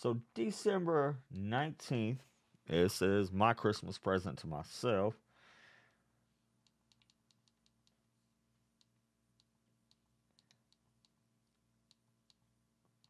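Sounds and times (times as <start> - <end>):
recorder buttons clicking: 6.7 - 8.0.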